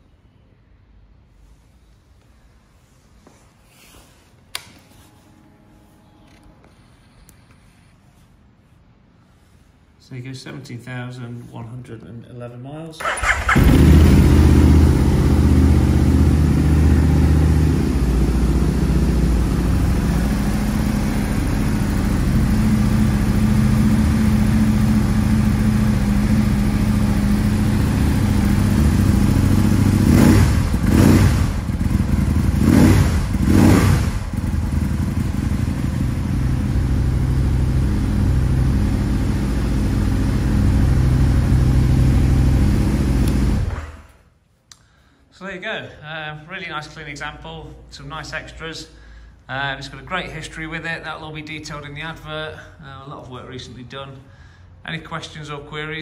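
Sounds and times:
motorcycle engine idling: 13.0s - 43.8s.

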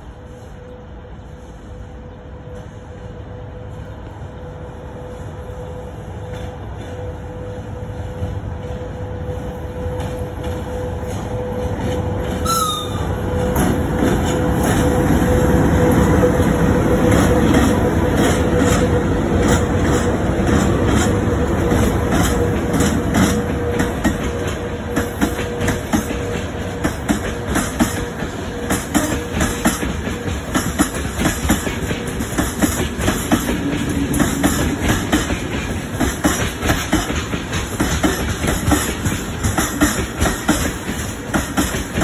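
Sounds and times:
electric locomotive rumbling past: 0.0s - 42.0s
wheels clicking over rail joints: 16.3s - 42.0s.

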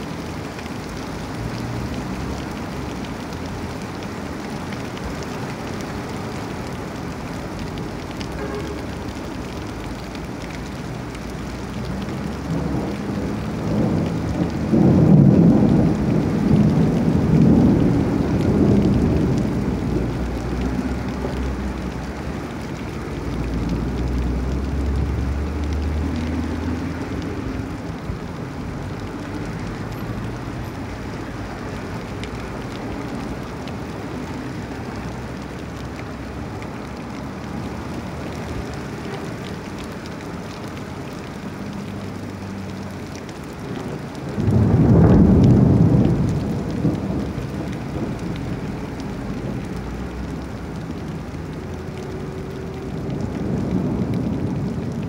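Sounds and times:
car tyres swishing through water: 0.0s - 55.0s
heavy rain falling: 0.0s - 55.0s
rumble of thunder: 11.9s - 26.6s, 43.4s - 51.2s, 52.6s - 55.0s.

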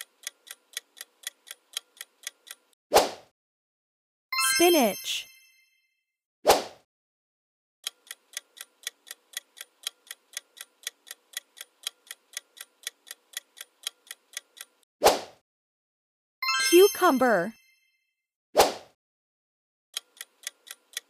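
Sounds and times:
clock-like ticking: 0.0s - 2.8s, 7.8s - 14.9s, 20.0s - 21.0s.

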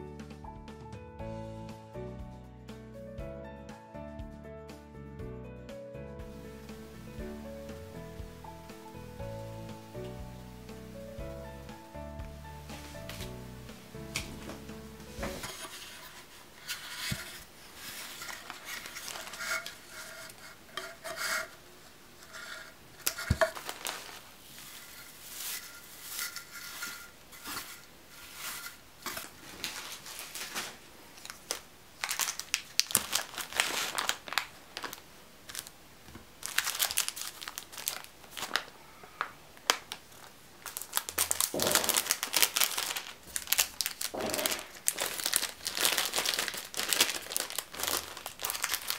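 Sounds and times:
hands rustling craft filler: 12.6s - 35.0s, 40.6s - 48.9s
plastic bag crinkling: 15.2s - 21.6s, 22.3s - 35.8s, 36.4s - 48.9s.

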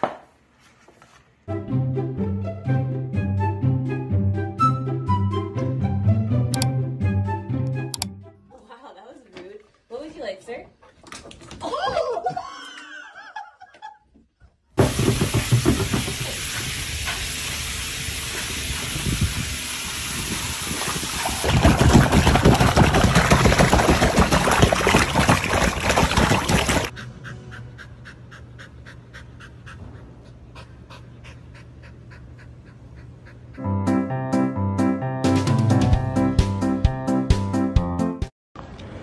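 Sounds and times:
water running from tap: 14.8s - 26.9s
dog splashing in water: 20.7s - 26.9s.

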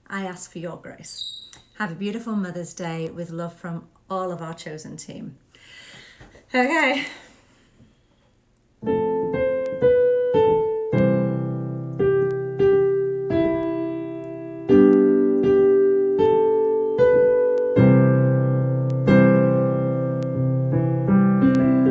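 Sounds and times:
slow piano melody: 8.8s - 21.9s.

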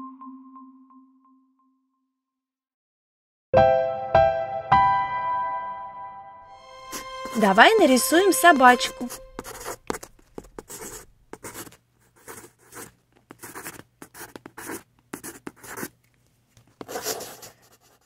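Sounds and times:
pencil scratching on paper: 6.9s - 16.0s, 16.8s - 18.0s.

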